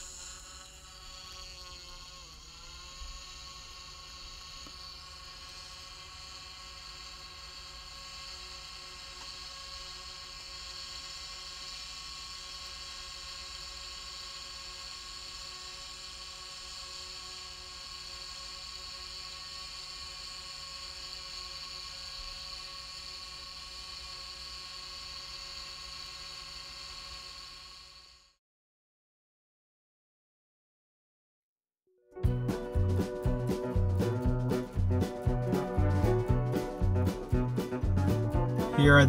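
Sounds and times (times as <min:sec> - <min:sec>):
steady whirring hum: 0:00.0 - 0:28.3.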